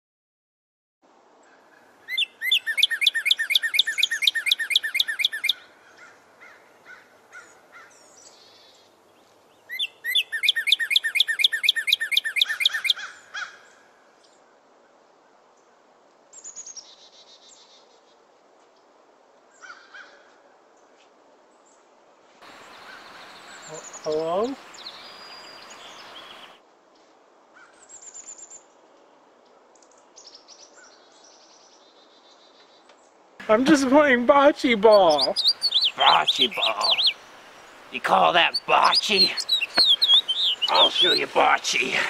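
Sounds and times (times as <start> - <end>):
bird trilling: 2.1 - 7.9, 9.7 - 13.6, 22.5 - 26.6, 33.4 - 42.0.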